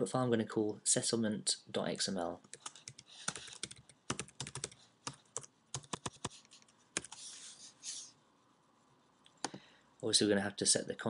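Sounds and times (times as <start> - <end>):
typing on a keyboard: 2.5 - 6.4.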